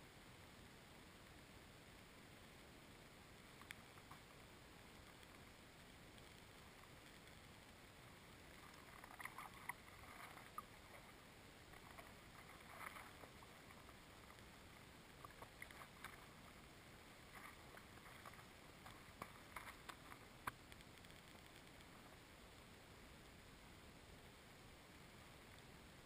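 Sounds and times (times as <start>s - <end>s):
water splashes: 3.4s - 22.3s
faint knocks and scrapes: 8.5s - 22.2s.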